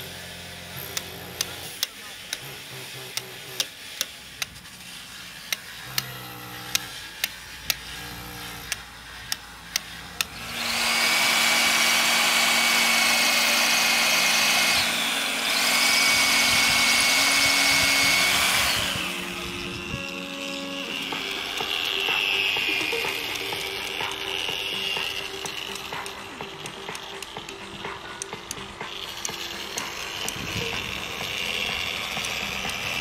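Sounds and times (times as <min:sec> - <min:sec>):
power tool whining: 0:00.0 - 0:33.0
sharp clicks: 0:08.6 - 0:11.9, 0:20.9 - 0:33.0.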